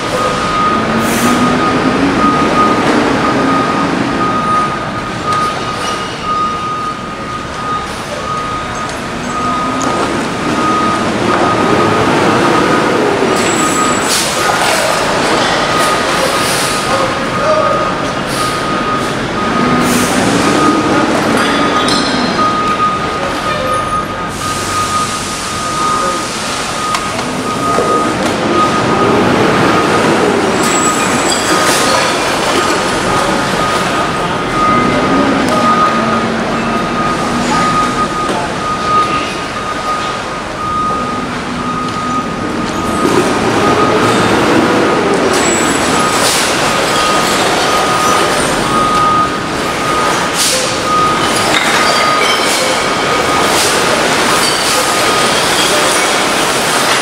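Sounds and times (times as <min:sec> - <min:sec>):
heavy diesel engine revving: 0:00.0 - 0:51.5
back-up alarm beeping: 0:00.0 - 0:57.0.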